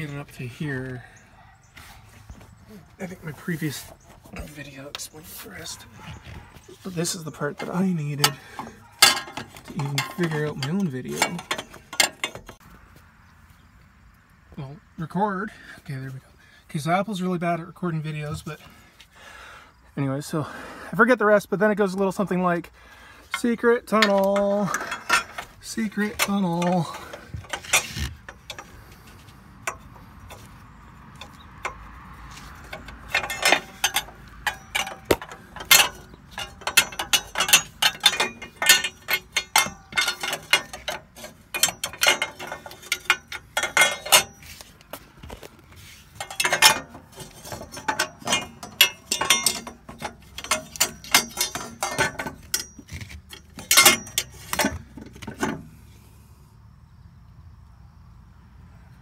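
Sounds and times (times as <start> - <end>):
metal tube clicking and scraping: 6.7 - 12.6, 23.3 - 30.5, 31.2 - 55.7.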